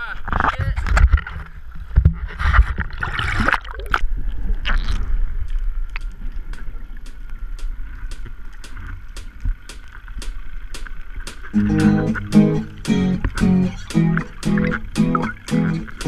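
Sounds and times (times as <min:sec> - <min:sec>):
water sloshing and gurgling: 0:00.1 - 0:16.0
sharp clicks: 0:05.9 - 0:16.0.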